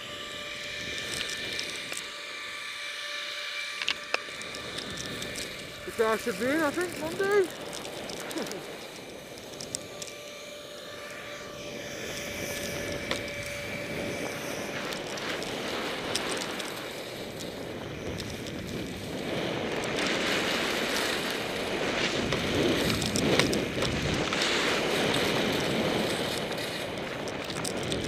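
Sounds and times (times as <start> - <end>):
skis sliding on snow: 0.0 - 28.0
wind rushing over microphone: 11.4 - 28.0.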